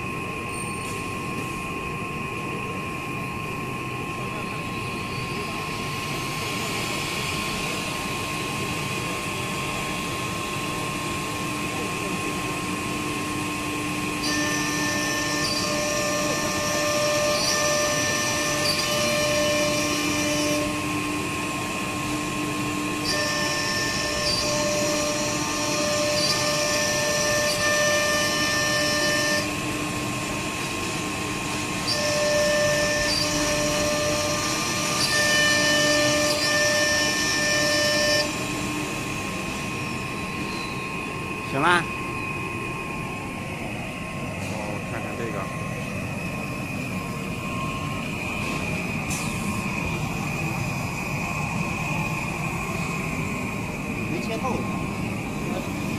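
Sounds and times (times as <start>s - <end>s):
cnc router mechanical hum: 0.0s - 55.9s
high whining tones: 4.4s - 55.9s.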